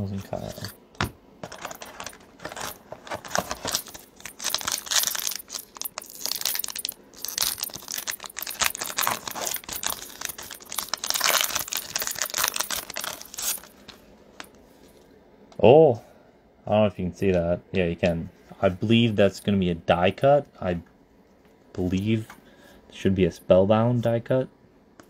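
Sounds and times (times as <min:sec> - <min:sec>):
foil wrapper tearing and crinkling: 0:02.5 - 0:13.7.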